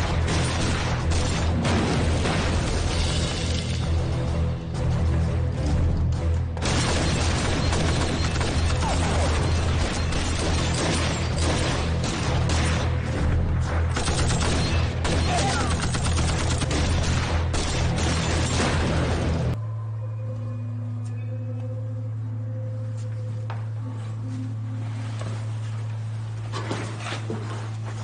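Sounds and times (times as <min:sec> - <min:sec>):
explosions: 0:00.0 - 0:03.6
low music drone: 0:00.0 - 0:28.0
rapid gunfire: 0:06.6 - 0:13.0, 0:13.9 - 0:19.4.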